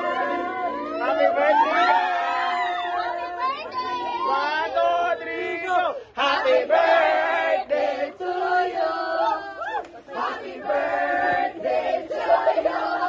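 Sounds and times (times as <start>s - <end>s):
rising whoop: 0.0s - 3.6s, 9.2s - 9.9s
group of people cheering: 0.0s - 6.0s, 8.8s - 10.4s.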